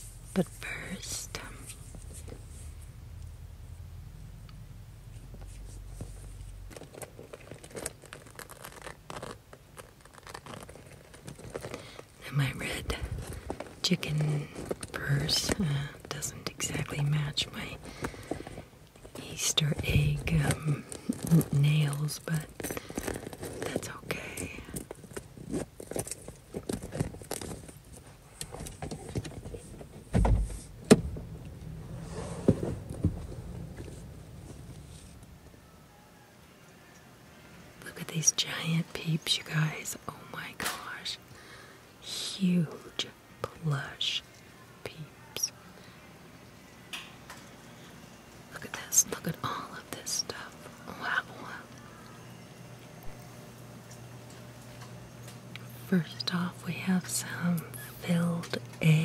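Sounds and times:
low steady hum: 0.0 - 59.0
low thump: 30.1 - 31.5.

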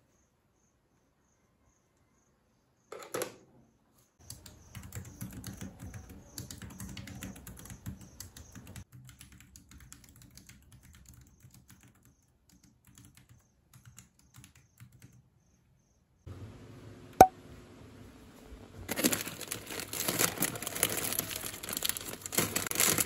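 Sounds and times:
typing on a keyboard: 4.2 - 15.3
light typing on laptop keyboard: 4.2 - 15.4.

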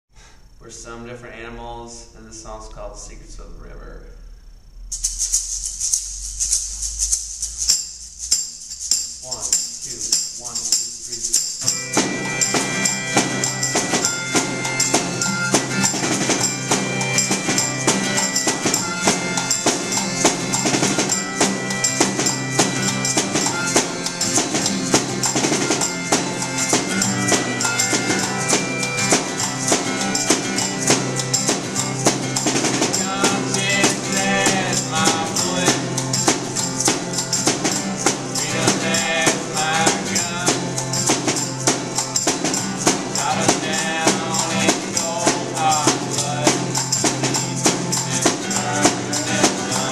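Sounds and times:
hand shakers: 4.9 - 49.9
harmonica long notes: 11.6 - 49.9
strummed acoustic guitar: 11.6 - 49.9
snare drum beat: 12.0 - 49.9.

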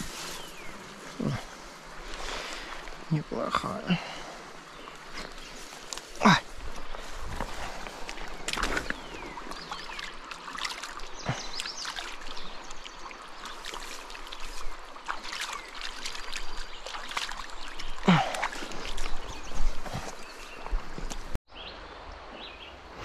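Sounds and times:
river water over rocks: 0.0 - 23.0
small water splashes: 3.8 - 21.3.

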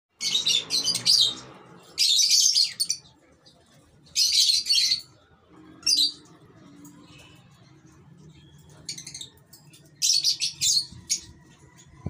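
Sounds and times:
parrots screeching: 0.2 - 3.0.

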